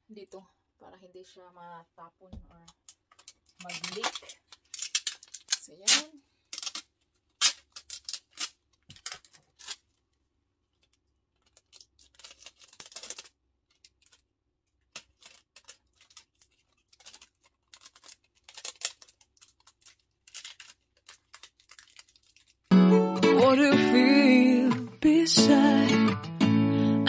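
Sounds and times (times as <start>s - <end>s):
adhesive tape ripping: 3.1s - 9.9s, 11.4s - 14.2s, 14.8s - 22.7s.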